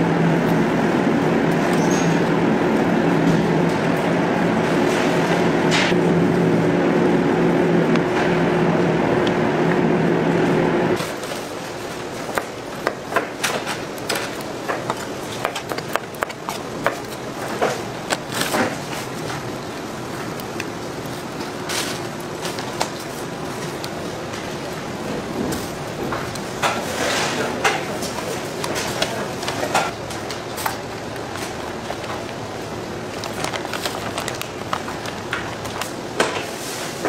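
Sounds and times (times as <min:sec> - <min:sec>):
machine humming with low drones: 0:00.0 - 0:26.7.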